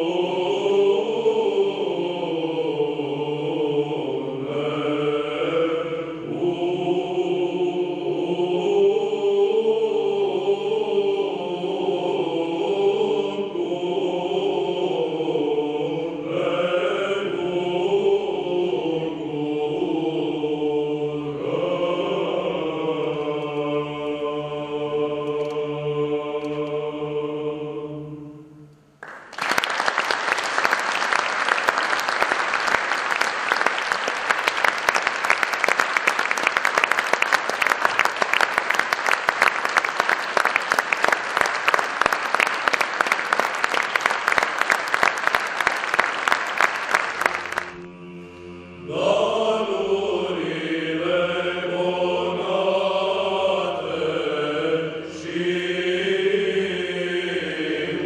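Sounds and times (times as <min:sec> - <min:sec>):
low held vocal drone: 0:00.0 - 0:28.6, 0:47.3 - 0:58.0
male choir chanting: 0:00.0 - 0:28.6, 0:46.9 - 0:58.0
audience applause: 0:29.0 - 0:47.8.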